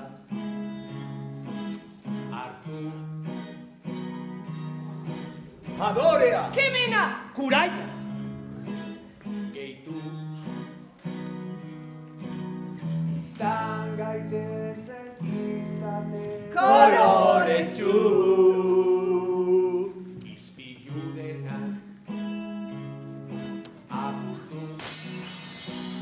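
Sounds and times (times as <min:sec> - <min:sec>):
person singing: 0:02.1 - 0:03.6, 0:08.6 - 0:11.2, 0:12.8 - 0:26.0.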